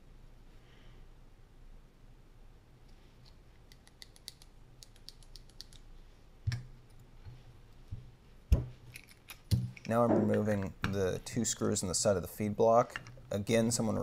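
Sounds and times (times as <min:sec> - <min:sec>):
small metal parts clicking: 0:08.9 - 0:09.9.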